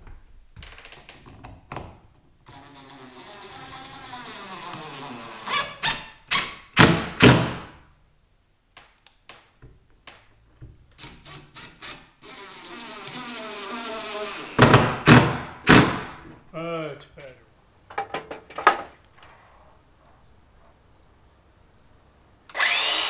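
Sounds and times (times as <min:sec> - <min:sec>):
cordless driver driving screws: 0:22.5 - 0:23.0.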